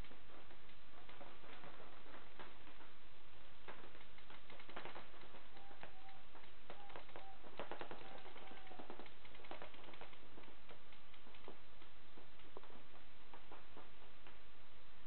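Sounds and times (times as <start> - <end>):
faint steady tone: 0.0 - 15.0
paintball markers firing: 3.6 - 13.9.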